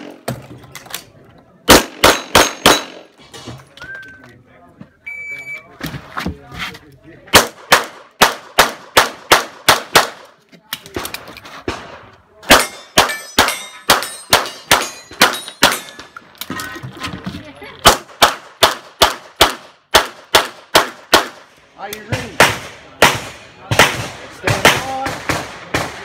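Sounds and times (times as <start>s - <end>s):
pistol shots in rapid strings: 1.7s - 3.0s.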